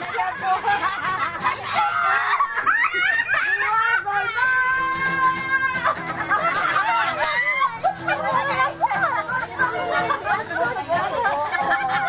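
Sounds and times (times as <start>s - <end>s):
people laughing and shrieking: 0.0s - 12.0s
long held cry: 1.7s - 6.2s, 6.8s - 9.4s.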